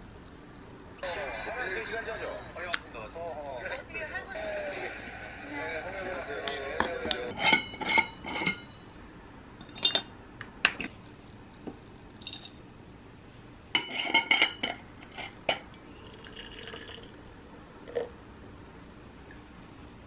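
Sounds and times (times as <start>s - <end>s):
spoon clinking glass jars: 6.8s - 8.7s, 9.6s - 10.2s, 12.2s - 12.6s, 13.8s - 15.7s.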